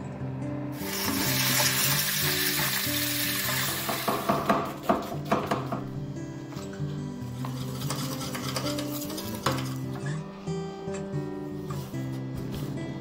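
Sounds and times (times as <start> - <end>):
background music: 0.0 - 13.0
food sizzling in a pan: 0.8 - 4.5.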